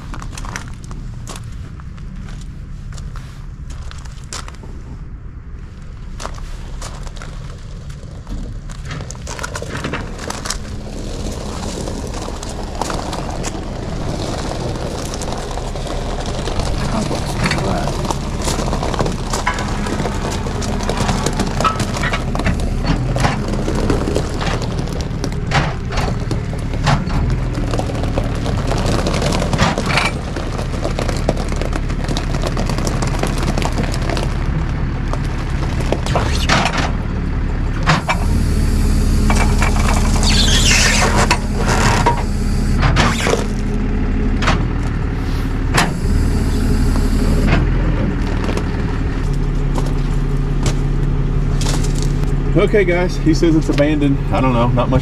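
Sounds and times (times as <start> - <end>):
truck engine running: 0.0 - 55.0
metal clanks and knocks: 16.6 - 28.2
high whine: 35.9 - 44.5.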